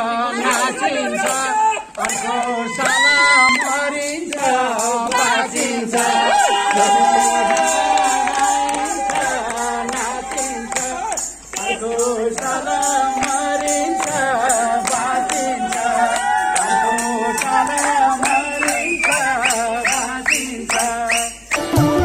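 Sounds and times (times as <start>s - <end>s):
man singing into microphone: 0.0s - 22.0s
music with percussion beat: 1.2s - 22.0s.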